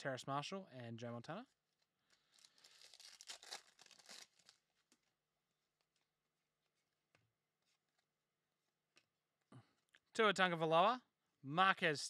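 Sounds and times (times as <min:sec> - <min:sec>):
foil wrapper tearing and crinkling: 0:02.2 - 0:05.1.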